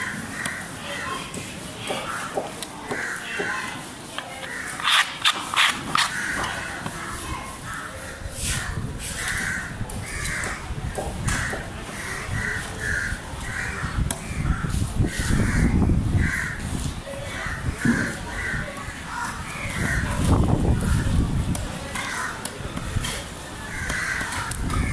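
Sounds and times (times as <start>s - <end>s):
crows cawing: 2.0s - 3.6s, 6.0s - 6.7s, 9.2s - 10.6s, 11.2s - 16.6s, 23.7s - 24.9s.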